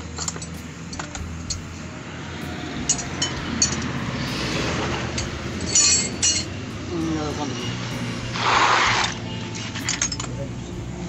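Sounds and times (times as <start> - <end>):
light metallic clinks: 0.0 - 1.7, 2.8 - 4.0, 5.1 - 6.5, 9.6 - 10.6.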